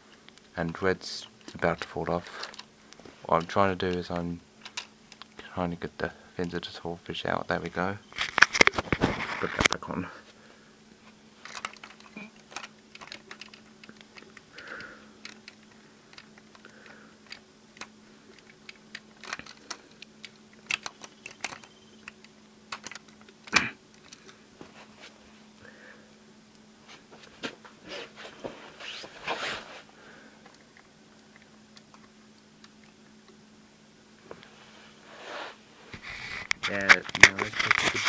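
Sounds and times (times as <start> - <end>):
faint steady hum: 0.0 - 38.0
plastic toy parts clicking: 11.4 - 24.3.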